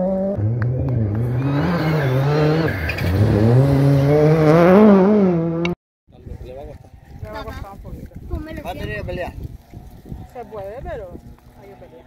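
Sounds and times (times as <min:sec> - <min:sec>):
rally car engine revving hard: 0:00.0 - 0:05.8.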